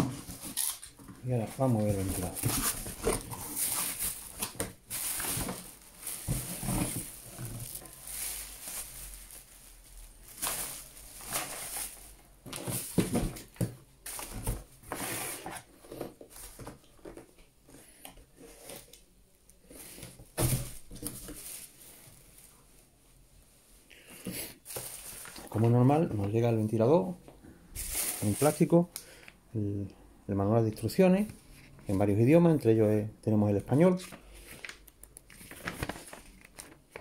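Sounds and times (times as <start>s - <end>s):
cardboard and plastic rustling: 0.0s - 17.5s, 19.7s - 22.8s, 24.2s - 26.8s, 27.8s - 28.8s, 33.7s - 37.0s.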